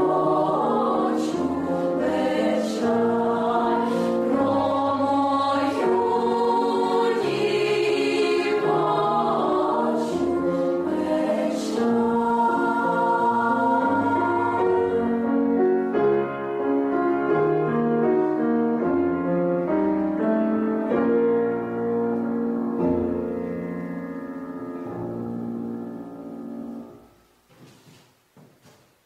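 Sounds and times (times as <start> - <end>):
girls' choir singing: 0.0 - 15.7
piano chords: 0.0 - 27.5.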